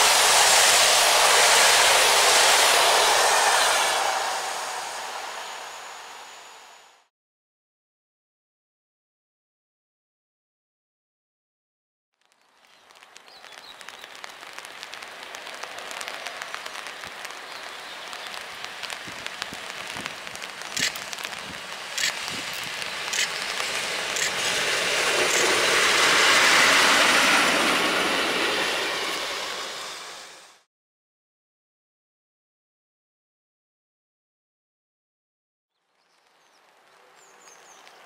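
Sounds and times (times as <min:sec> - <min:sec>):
electric locomotive passing: 0:00.0 - 0:07.1, 0:12.9 - 0:30.7
sharp clicks: 0:18.2 - 0:24.5.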